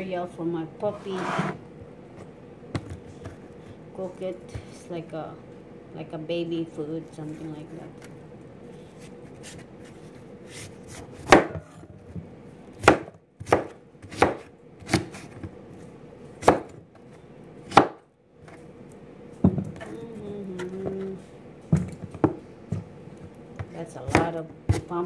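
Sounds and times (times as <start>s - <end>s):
knife chopping on cutting board: 10.5s - 11.8s, 12.8s - 15.5s, 16.4s - 16.8s, 17.7s - 18.0s.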